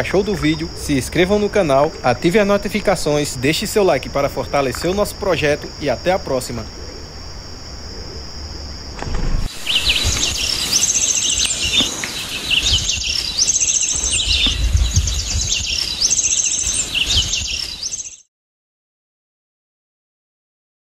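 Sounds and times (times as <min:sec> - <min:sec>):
birds chirping and trilling: 0:00.0 - 0:04.7, 0:06.3 - 0:18.3
insects droning: 0:00.0 - 0:18.2.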